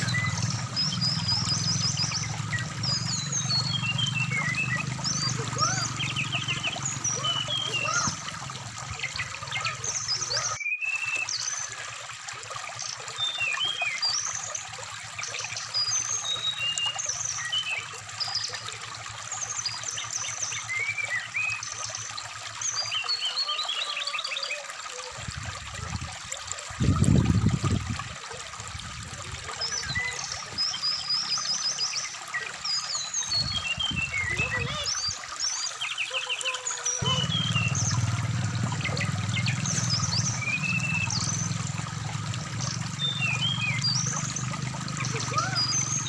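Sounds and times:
trickling stream: 0.0s - 46.0s
bird whistled chirps: 10.4s - 11.5s.

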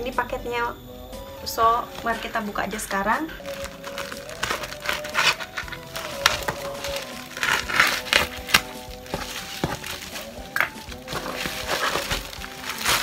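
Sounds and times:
background music: 0.0s - 13.0s
plastic crinkling: 3.3s - 13.0s
scissors snipping plastic wrap: 3.4s - 13.0s.

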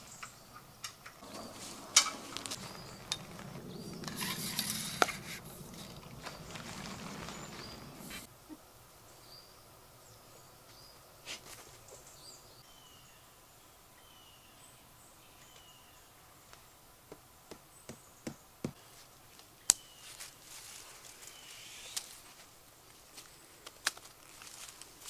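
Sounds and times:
small birds chirping: 0.0s - 16.8s, 21.0s - 22.2s.

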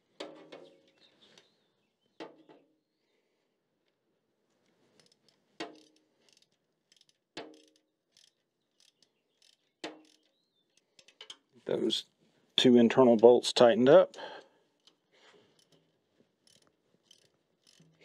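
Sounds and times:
ratchet ticking: 5.0s - 11.4s, 14.8s - 18.0s
wrench clinking on bolts: 5.0s - 11.5s, 14.8s - 18.0s.

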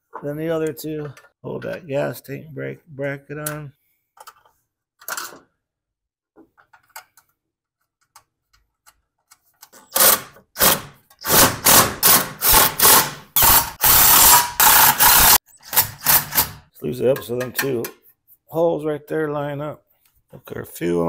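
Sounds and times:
impact driver bursts: 9.9s - 16.6s.

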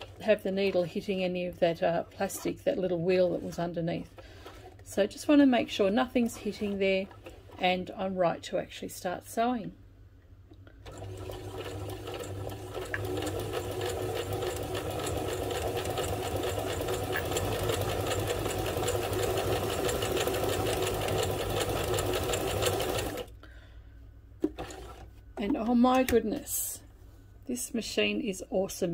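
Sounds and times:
sewing machine stitching: 10.8s - 23.3s, 24.5s - 25.1s.

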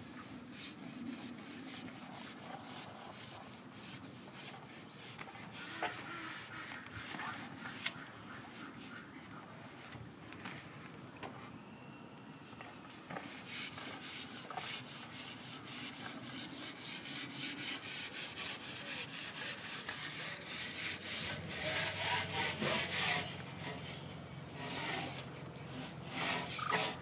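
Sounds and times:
rhythmic rubbing strokes: 13.3s - 27.0s.

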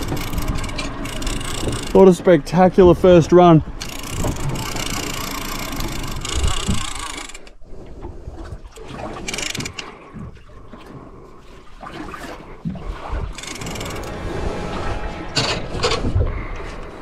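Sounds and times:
fishing reel cranking: 0.0s - 2.0s, 3.8s - 7.6s, 9.2s - 9.8s, 13.3s - 14.1s
reel and rod ticking: 0.0s - 2.7s, 3.8s - 7.6s, 8.7s - 10.3s, 13.3s - 14.2s
water noise: 0.0s - 17.0s
wind gusts: 12.9s - 17.0s.

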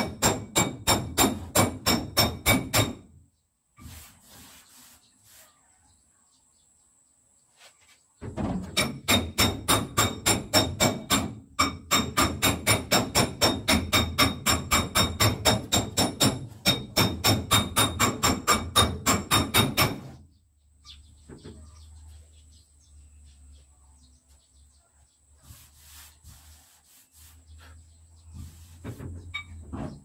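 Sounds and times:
hammer striking steel panel: 0.0s - 3.1s, 8.5s - 20.2s.

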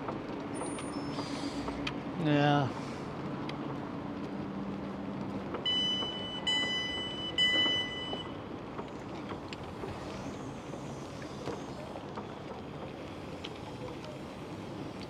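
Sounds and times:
station platform background noise: 4.9s - 14.9s
two-tone electronic beeps: 5.7s - 8.3s.

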